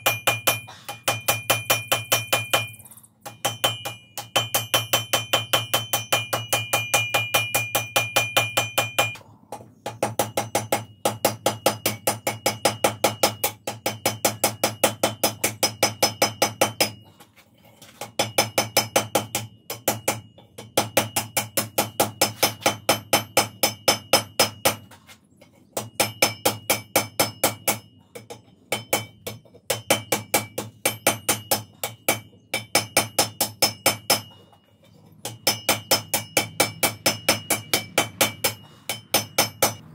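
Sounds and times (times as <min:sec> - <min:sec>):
anvil ringing: 0:00.0 - 0:09.2, 0:35.2 - 0:39.9
hammer striking hot iron on anvil: 0:00.0 - 0:17.1, 0:18.0 - 0:24.9, 0:25.7 - 0:34.5, 0:35.2 - 0:39.9.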